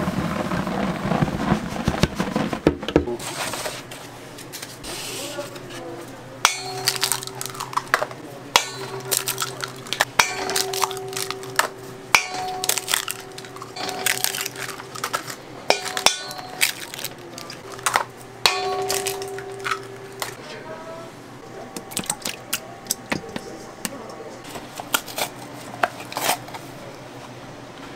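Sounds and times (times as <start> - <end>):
steady machine hum: 3.3 - 27.9
metal tools and pans clanking: 6.5 - 20.4.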